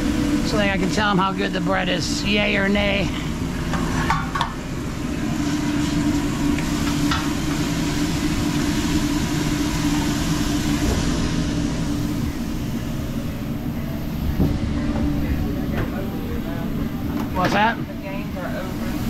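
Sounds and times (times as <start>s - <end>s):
motor humming: 4.8s - 19.0s.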